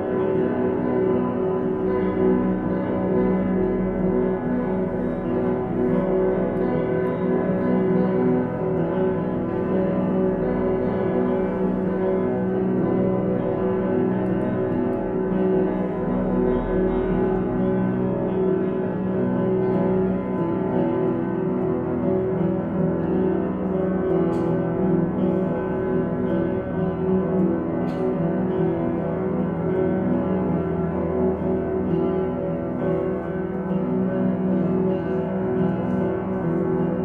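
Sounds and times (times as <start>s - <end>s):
sustained piano drone: 0.0s - 37.0s.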